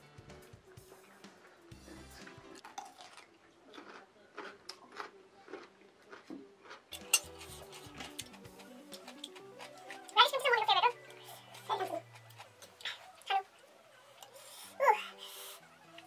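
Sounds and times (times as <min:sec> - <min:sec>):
faint background music: 0:00.0 - 0:16.0
utensils clinking on ceramic plate: 0:07.0 - 0:08.3.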